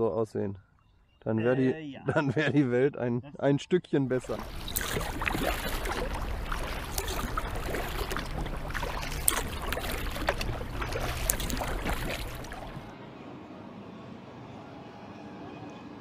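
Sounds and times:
paddles dipping into water: 4.1s - 12.9s
water dripping and splashing: 4.1s - 12.9s.

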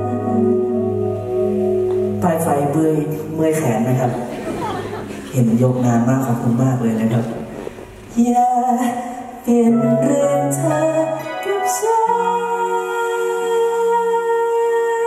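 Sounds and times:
electric guitar: 0.0s - 3.4s
man singing into microphone: 8.1s - 15.0s.

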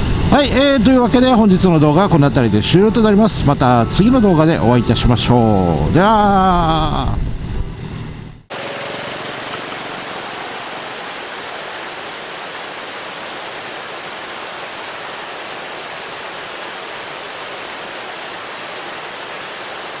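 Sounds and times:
river water rushing over rapids: 8.5s - 20.0s.

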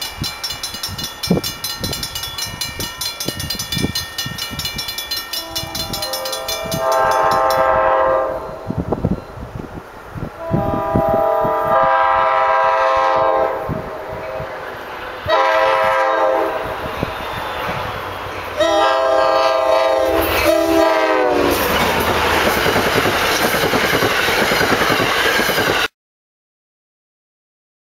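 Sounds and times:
train wheels clattering: 0.0s - 8.1s, 14.2s - 25.9s
locomotive horn blasts: 5.4s - 8.9s, 10.4s - 14.6s, 15.2s - 16.8s, 18.6s - 21.7s.

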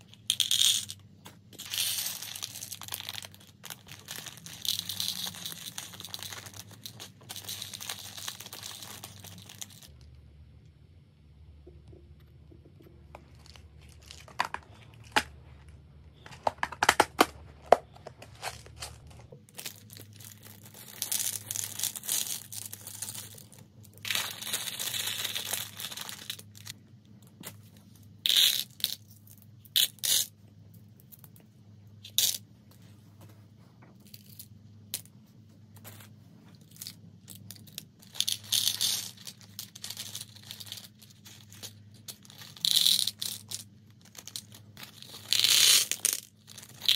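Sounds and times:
plastic beads clicking and rattling: 0.0s - 10.1s, 13.1s - 15.3s, 16.2s - 26.8s, 36.6s - 46.9s
plastic bags rustling: 1.5s - 9.9s, 13.2s - 15.5s.

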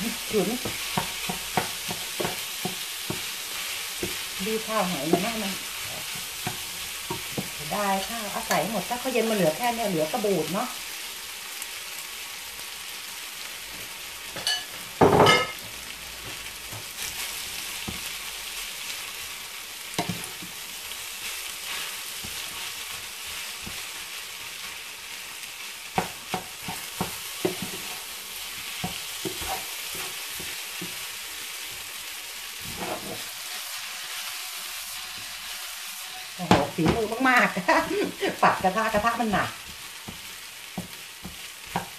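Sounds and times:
spatula scraping a pan: 0.0s - 9.4s, 19.9s - 24.8s, 25.9s - 31.9s, 32.5s - 41.9s
rice sizzling in a frying pan: 0.0s - 41.9s
spatula knocking on a pan: 0.6s - 3.4s, 26.0s - 27.9s, 38.5s - 41.9s.

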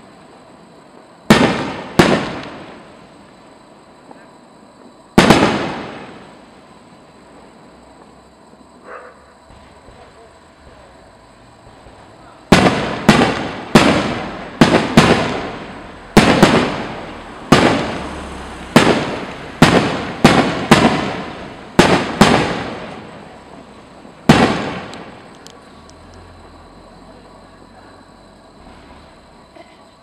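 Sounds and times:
faint firework crackles: 0.0s - 30.0s
firework bangs echoing: 1.2s - 3.1s, 5.1s - 6.5s, 11.6s - 25.4s.

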